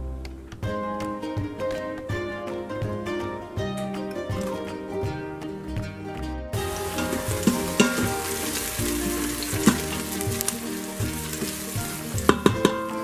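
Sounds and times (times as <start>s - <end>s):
background music: 0.0s - 13.0s
onion sizzling in hot oil: 6.6s - 13.0s
spatula knocking against pot: 6.9s - 8.4s, 12.2s - 12.8s.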